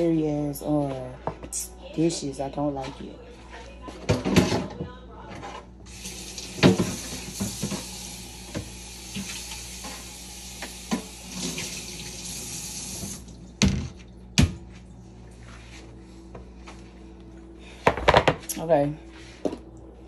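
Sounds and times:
tap water running into sink: 5.9 - 14.6.

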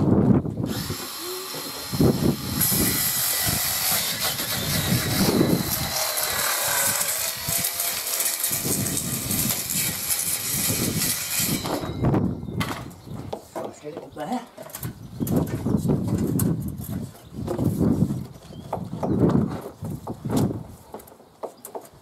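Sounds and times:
saw cutting plastic board: 0.7 - 11.9.

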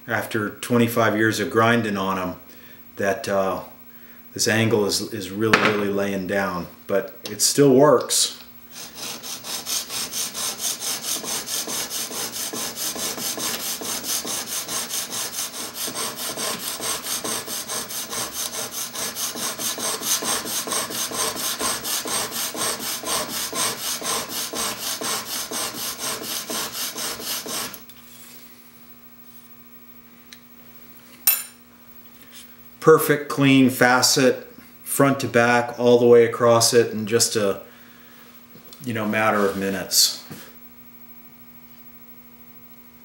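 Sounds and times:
chisel rasping on sharpening stone: 8.8 - 27.8.

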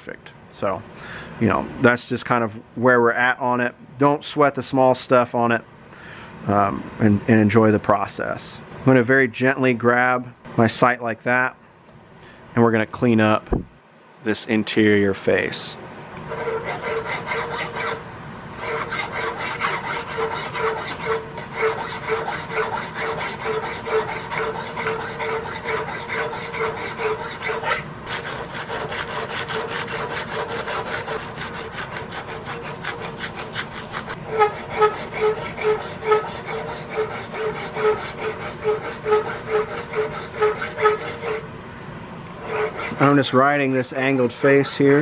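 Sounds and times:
hand file rasping on metal: 16.3 - 18.0, 18.6 - 41.4, 42.4 - 45.0.

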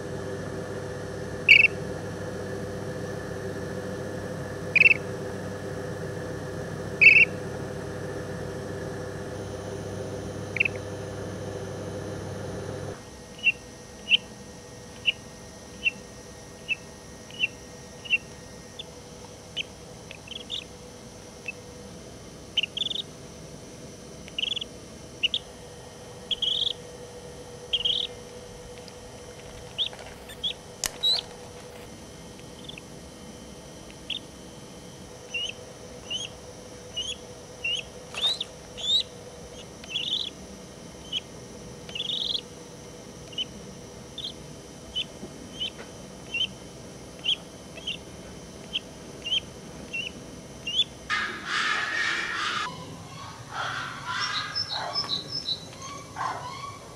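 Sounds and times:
steady low hum: 0.0 - 56.9
crane chick peeping: 1.4 - 1.8, 4.7 - 5.1, 7.0 - 7.4, 10.5 - 11.0, 15.0 - 15.2, 16.7 - 18.9, 19.6 - 20.7, 22.6 - 23.1, 24.3 - 25.5, 26.3 - 26.8, 27.7 - 28.2, 29.7 - 31.3, 32.6 - 32.9, 33.9 - 34.3, 35.3 - 40.4, 41.0 - 42.5, 43.2 - 46.6, 47.2 - 56.9.

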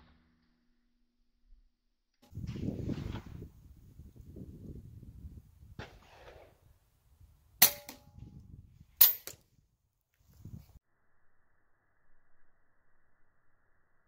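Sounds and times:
rifle shots: 5.8 - 6.6.

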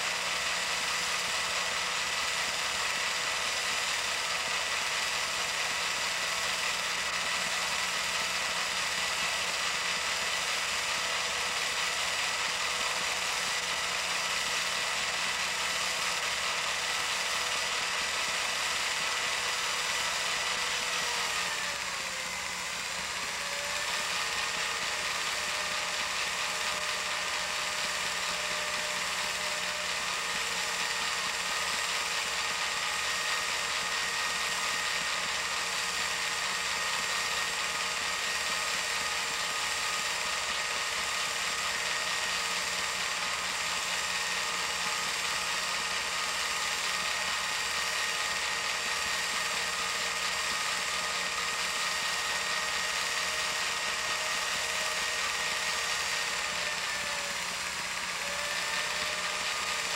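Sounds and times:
film projector motor whir: 0.0 - 59.9.

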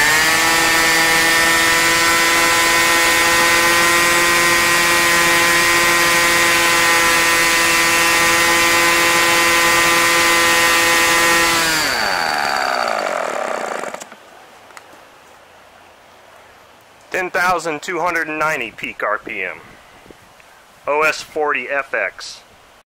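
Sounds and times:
model airplane engine running: 0.0 - 14.2.

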